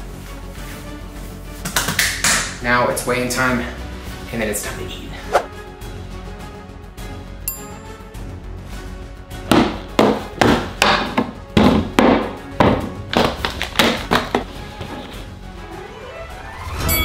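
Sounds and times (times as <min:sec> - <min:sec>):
background music: 0:00.0 - 0:17.0
items knocking on wooden countertop: 0:09.5 - 0:15.2.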